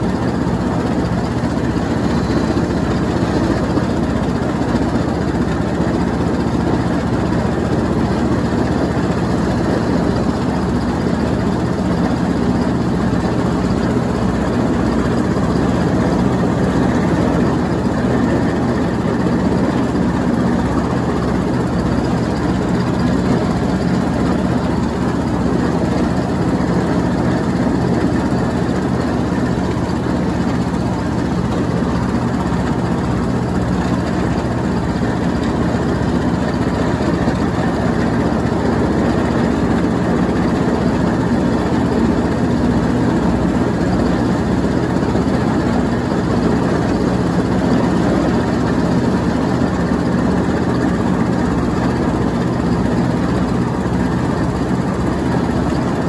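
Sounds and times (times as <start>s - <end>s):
riding lawn mower running: 0.0s - 56.0s.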